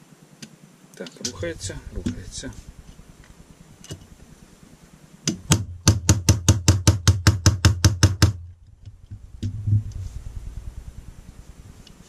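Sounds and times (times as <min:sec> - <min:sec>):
hammer tapping a pin punch: 0:05.3 - 0:08.4.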